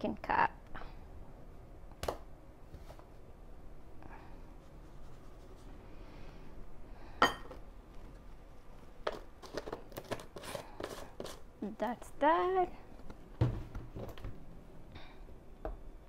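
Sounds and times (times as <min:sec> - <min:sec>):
cup clinking: 0:07.2 - 0:07.6.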